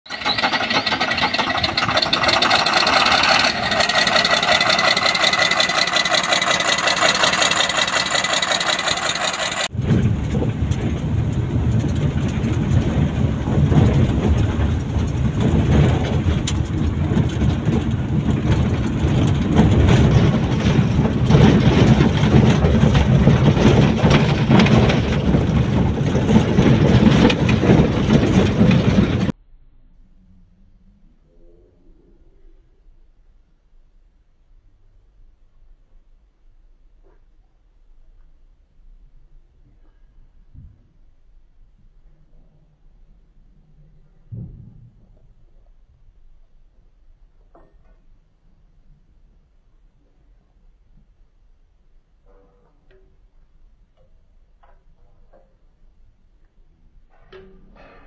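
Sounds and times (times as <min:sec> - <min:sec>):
vehicle rumbling on rough dirt road: 0:00.0 - 0:30.6
diesel engine running with high whine: 0:00.1 - 0:29.3.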